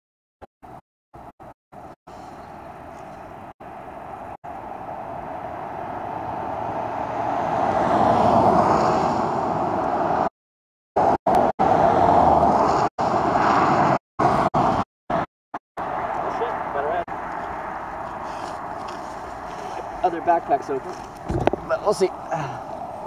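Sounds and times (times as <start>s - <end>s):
vehicle passing: 2.2s - 10.3s, 15.8s - 23.0s.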